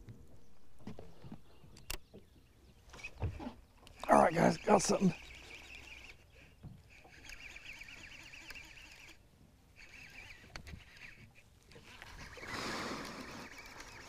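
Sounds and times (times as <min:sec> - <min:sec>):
fishing reel clicking: 0:03.8 - 0:14.0.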